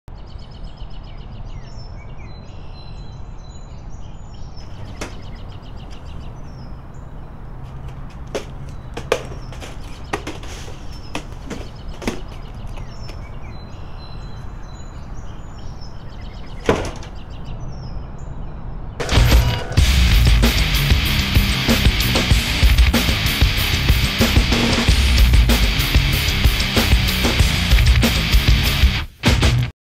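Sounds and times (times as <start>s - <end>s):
birds chirping: 0.2s - 28.9s.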